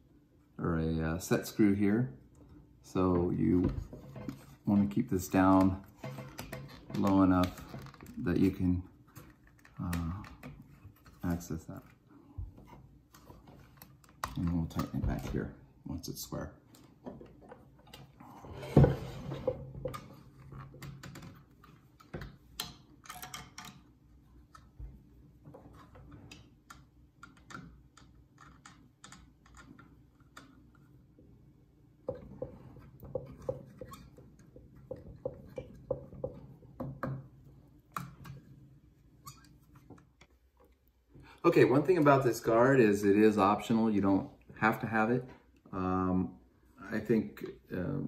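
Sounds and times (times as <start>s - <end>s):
plastic and metal parts rattling: 19.9s - 23.9s.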